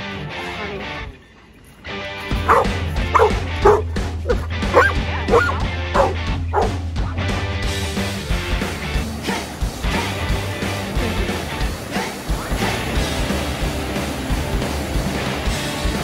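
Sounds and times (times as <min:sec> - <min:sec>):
music with strong bass: 0:02.3 - 0:16.0
dog yipping and barking: 0:02.4 - 0:06.7.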